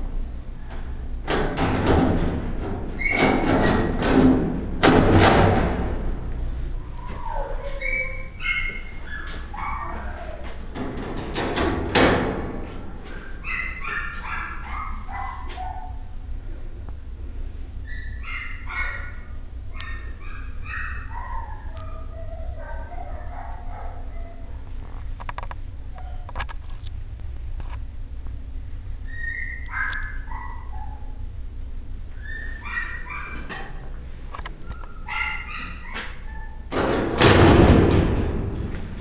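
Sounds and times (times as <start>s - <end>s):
steady low hum: 0.0s - 39.0s
wire cage door clanking: 1.2s - 6.3s, 10.6s - 15.0s, 32.8s - 34.0s, 35.1s - 39.0s
dogs barking and yipping: 6.8s - 10.7s, 13.1s - 16.2s, 17.8s - 24.7s, 25.9s - 26.4s, 29.1s - 31.2s, 32.1s - 33.9s, 34.6s - 36.7s.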